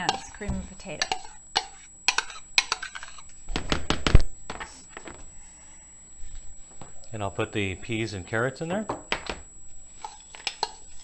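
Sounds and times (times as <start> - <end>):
spoon scraping ceramic bowl: 0.0 - 3.4, 9.9 - 11.0.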